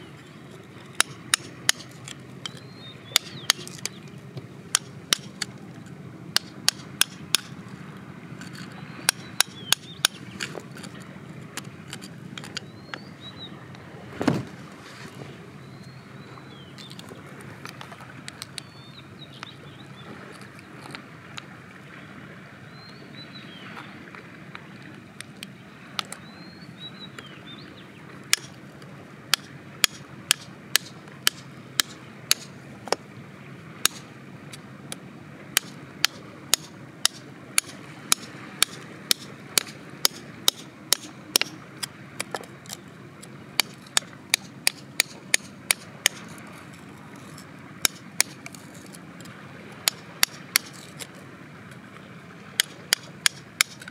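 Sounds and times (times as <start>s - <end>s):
rod scraping gritty soil and stone: 0.5s - 7.8s, 8.4s - 12.7s, 43.6s - 51.2s
bird chirps: 2.4s - 4.2s, 8.7s - 10.6s, 12.6s - 13.6s, 15.6s - 17.0s.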